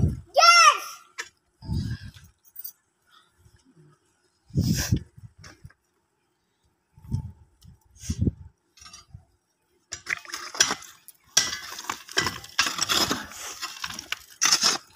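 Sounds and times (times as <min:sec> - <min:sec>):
tool scraping stony soil: 0:10.6 - 0:14.9.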